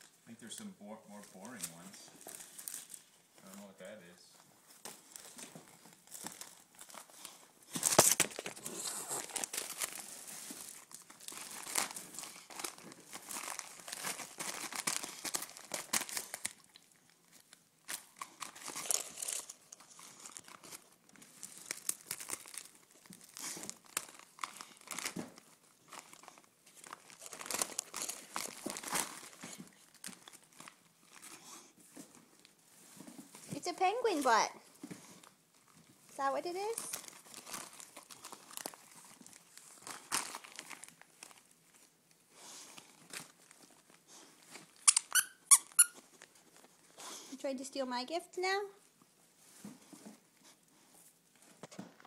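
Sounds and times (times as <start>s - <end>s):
wrapping paper crinkling and tearing: 0.0s - 3.9s, 4.6s - 34.4s, 35.2s - 47.4s.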